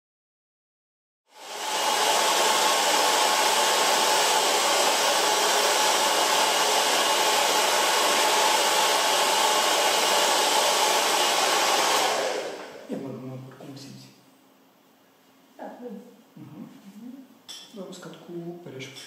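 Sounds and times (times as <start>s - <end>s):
hair dryer blowing: 1.3s - 12.9s.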